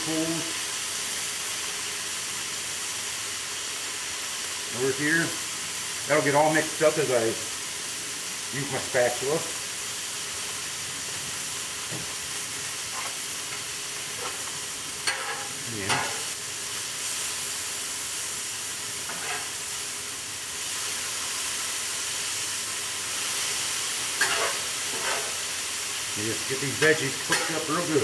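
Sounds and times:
vegetables sizzling on a griddle: 0.0s - 28.0s
metal spatula scraping: 12.9s - 13.2s, 14.2s - 16.4s, 19.1s - 19.6s, 24.2s - 25.5s, 26.8s - 28.0s.

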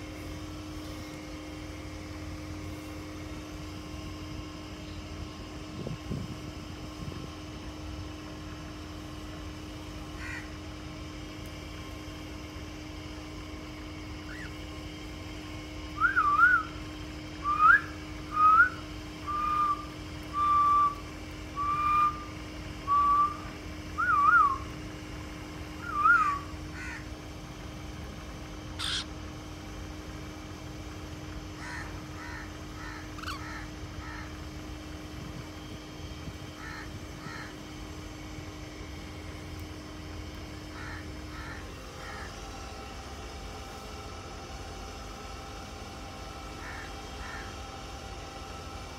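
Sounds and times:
cockatiel whistling: 17.4s - 21.0s, 21.6s - 22.3s, 22.9s - 24.6s, 25.8s - 26.4s.

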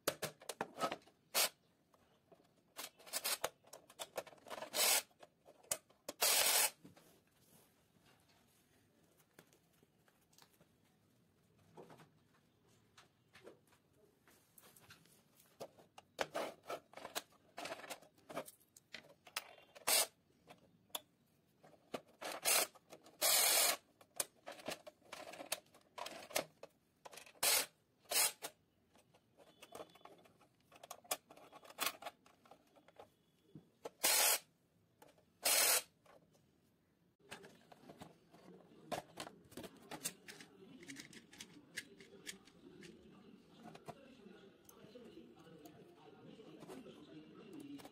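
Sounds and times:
plastic toy clicking and rattling: 21.8s - 28.6s, 39.9s - 43.0s.

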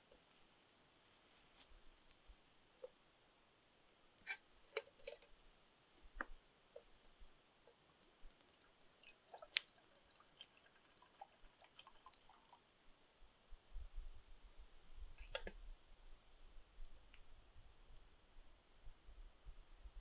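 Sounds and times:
water dripping: 6.2s - 12.7s.

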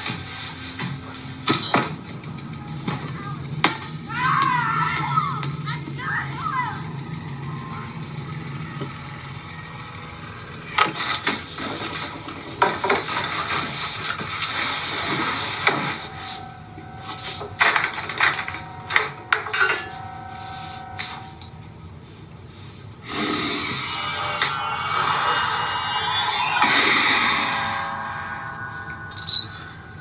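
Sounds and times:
steady held tone: 18.5s - 21.6s, 23.4s - 30.0s.

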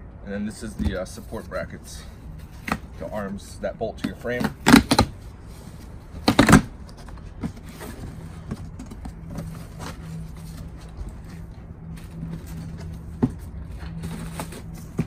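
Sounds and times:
cardboard flaps scraping: 4.0s - 15.0s
cardboard rustles and taps: 6.2s - 11.4s.

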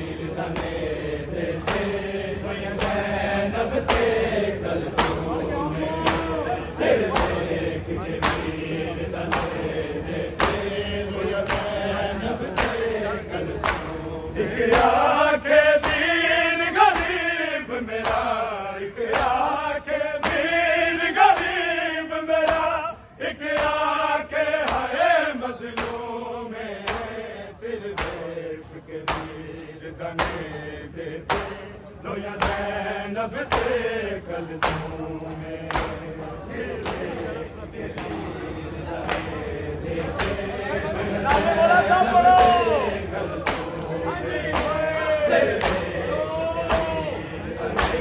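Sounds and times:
men chanting together: 0.0s - 48.0s.

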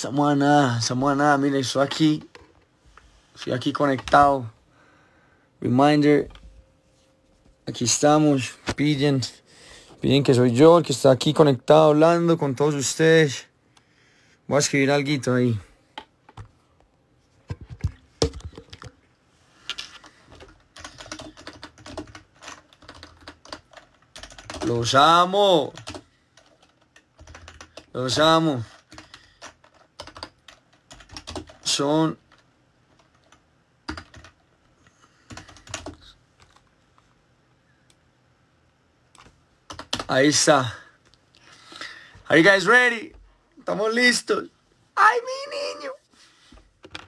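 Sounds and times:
keyboard typing: 19.7s - 34.5s, 35.2s - 36.7s, 39.2s - 40.1s.

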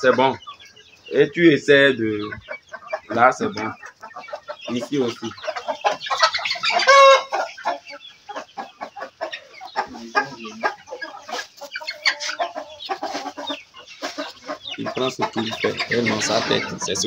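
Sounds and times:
chickens clucking: 0.0s - 17.0s
loud high chicken call: 6.1s - 7.4s.

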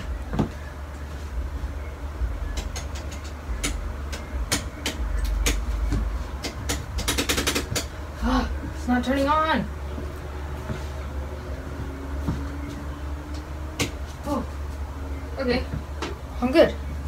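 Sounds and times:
sharp clicks and knocks: 2.5s - 8.0s.

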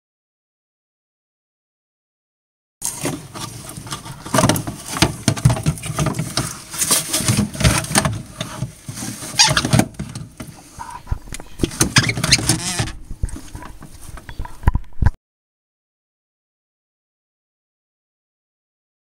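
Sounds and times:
hands handling wiring and connectors: 2.8s - 15.1s.

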